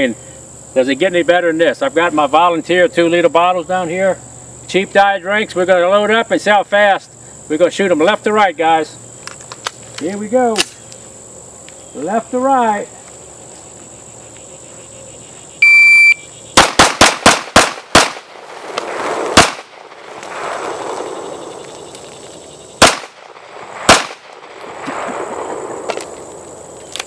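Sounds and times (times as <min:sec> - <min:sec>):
crickets trilling: 0:00.0 - 0:27.0
shot timer beep: 0:15.6 - 0:16.2
pistol shots: 0:16.6 - 0:21.0, 0:22.8 - 0:26.1.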